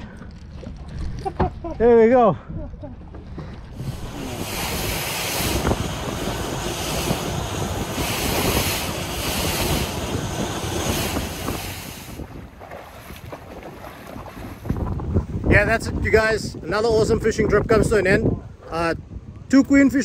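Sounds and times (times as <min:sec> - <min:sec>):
wind buffeting microphone: 0:00.0 - 0:20.0
water rushing along boat hull: 0:03.0 - 0:17.3.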